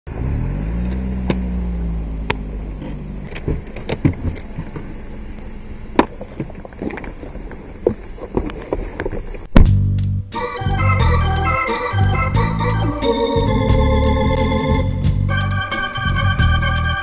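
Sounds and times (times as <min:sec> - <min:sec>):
car engine running: 0:00.1 - 0:09.7
suitcase knocking and clicking: 0:03.4 - 0:04.9.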